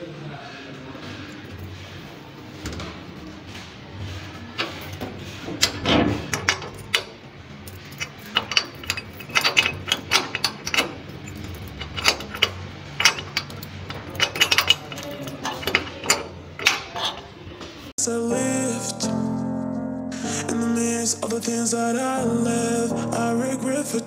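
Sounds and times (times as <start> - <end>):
keys jangling: 4.6 - 17.4
padlock clinking against metal door: 4.6 - 17.6.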